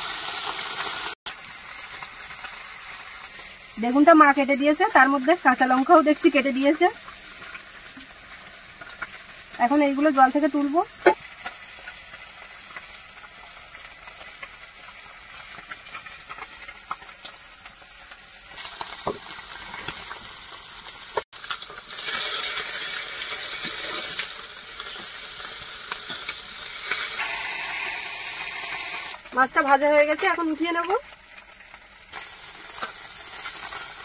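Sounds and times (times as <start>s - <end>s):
fish sizzling in oil: 0.0s - 34.0s.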